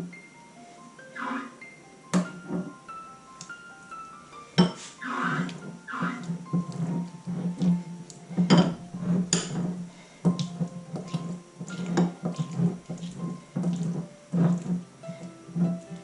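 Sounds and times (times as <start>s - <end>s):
background music: 0.0s - 16.0s
spoon stirring in glass bowl: 4.6s - 15.8s.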